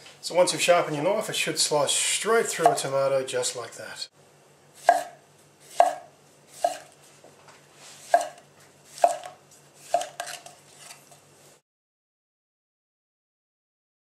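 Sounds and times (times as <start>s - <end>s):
knife slicing a tomato: 4.8s - 7.0s, 7.8s - 11.2s.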